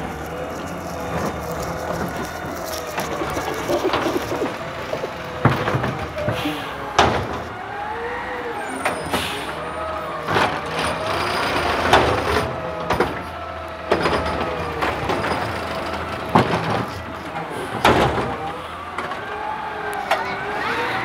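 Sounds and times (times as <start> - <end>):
garbage truck running: 0.0 - 21.0
hydraulic arm whine: 0.0 - 21.0
trash cart knocks and bangs: 3.8 - 7.6, 10.3 - 19.2.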